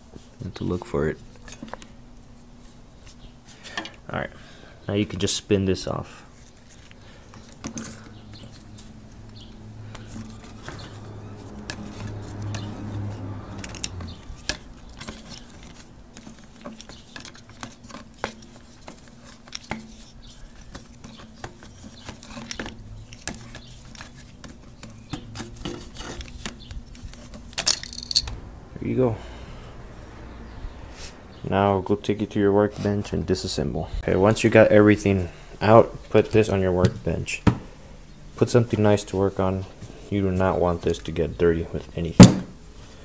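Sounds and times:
low steady hum: 0.0s - 43.0s
metallic clicks and rattles: 13.5s - 21.1s, 24.8s - 28.4s.

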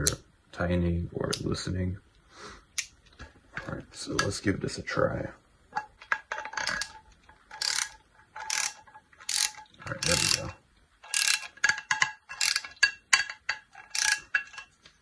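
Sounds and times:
ratchet pawl clicks: 7.5s - 11.5s, 12.3s - 12.8s, 13.9s - 14.3s.

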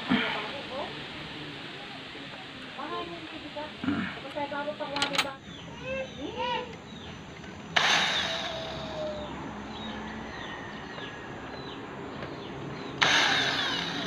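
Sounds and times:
cordless drill boring into wood: 7.8s - 9.0s, 13.0s - 14.0s.

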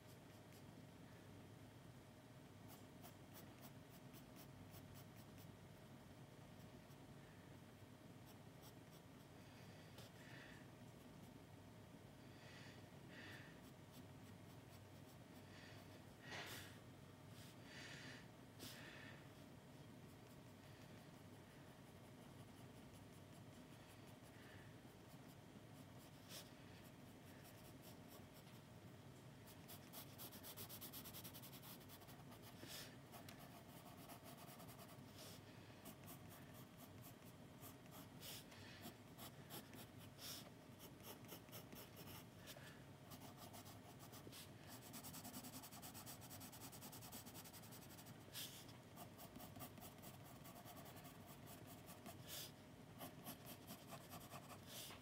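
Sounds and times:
pencil scratching on paper: 29.5s - 55.0s.

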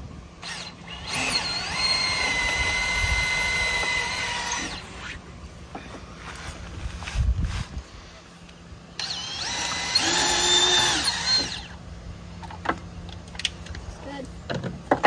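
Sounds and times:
cordless drill motor whine: 0.4s - 5.2s, 9.0s - 11.8s.

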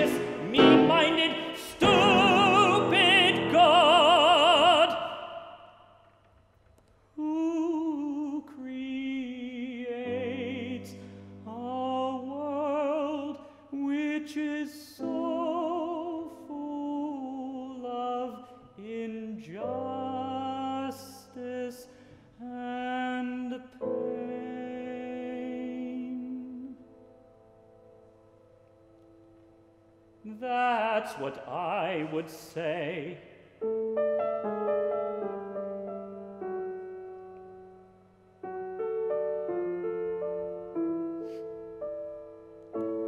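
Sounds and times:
man singing operatically: 0.0s - 5.7s, 7.2s - 26.8s, 30.2s - 33.4s
grand piano: 0.0s - 43.0s.

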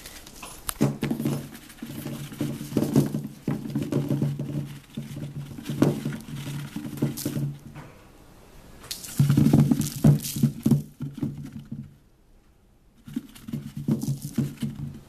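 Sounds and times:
scratchy churning in dust bath: 0.0s - 7.6s.

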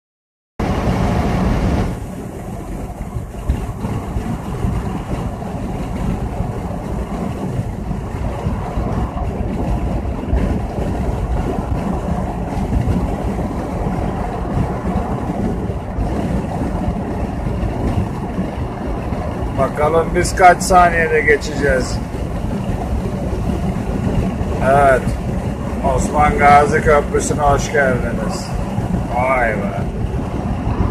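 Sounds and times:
car cabin road rumble: 0.6s - 30.9s.

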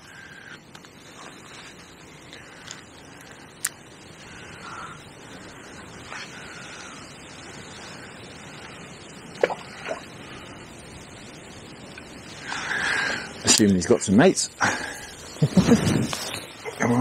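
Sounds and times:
faint bird calls: 0.0s - 13.6s
wind: 0.0s - 17.0s.

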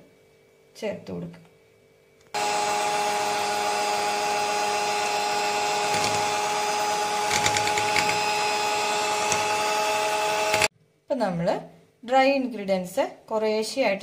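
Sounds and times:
electric hand mixer whining: 2.4s - 10.7s.

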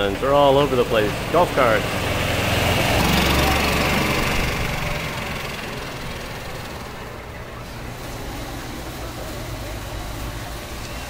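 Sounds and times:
golf cart engine passing: 0.0s - 11.0s.

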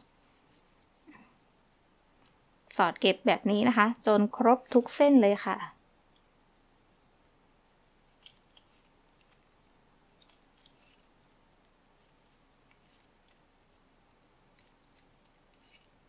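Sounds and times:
ribbon rustling: 8.2s - 16.0s.

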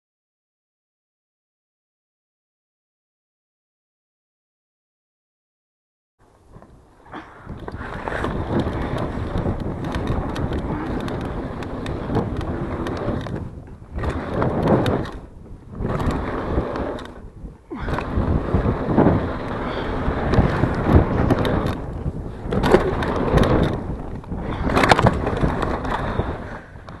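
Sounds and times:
bike rattling: 6.2s - 27.0s
bike tyres crunching on dirt: 6.2s - 27.0s
wind noise on microphone: 6.3s - 27.0s.

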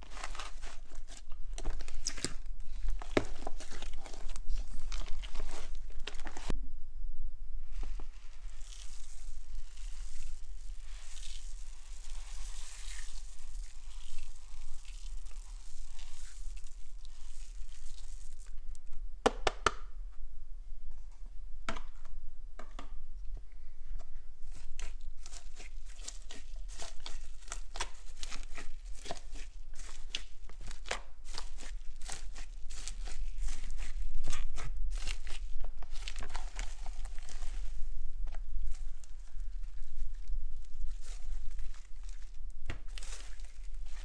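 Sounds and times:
foam beads crackling in slime: 0.0s - 6.5s, 7.7s - 18.7s, 24.5s - 44.0s
beads pouring and rustling: 7.7s - 18.7s, 38.6s - 44.0s.

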